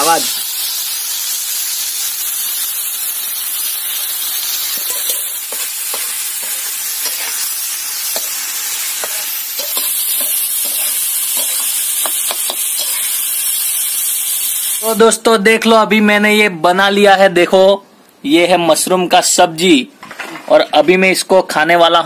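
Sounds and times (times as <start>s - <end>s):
food sizzling in oil: 0.0s - 15.1s.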